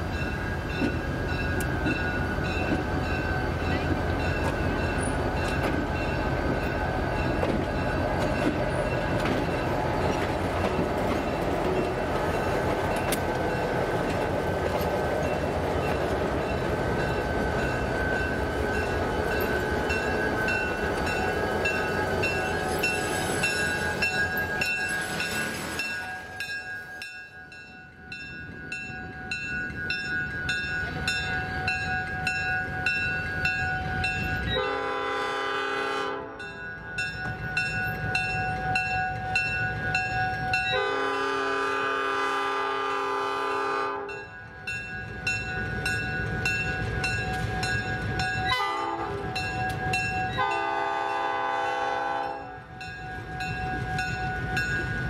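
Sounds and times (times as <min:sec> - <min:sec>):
locomotive engine rumble: 0:00.0 - 0:26.9.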